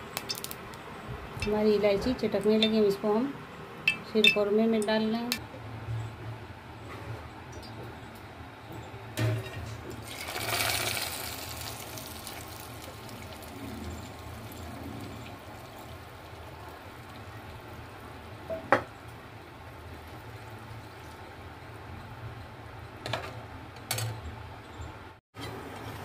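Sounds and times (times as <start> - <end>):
ghee sizzling in a pot: 10.0 - 18.0.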